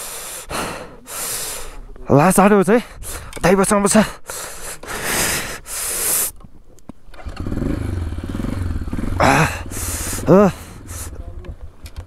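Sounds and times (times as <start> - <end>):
engine starting and idling: 7.1 - 11.0.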